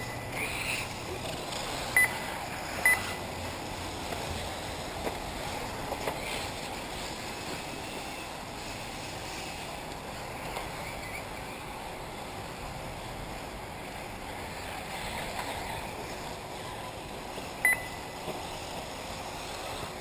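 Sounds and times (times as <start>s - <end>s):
rc cars running: 0.0s - 20.0s
short high electronic beeps: 2.0s - 2.2s, 2.8s - 3.2s, 17.6s - 18.2s.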